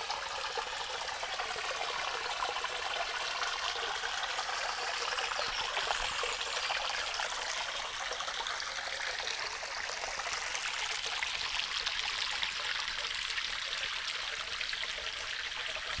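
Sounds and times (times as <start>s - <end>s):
stream trickling: 0.0s - 16.0s.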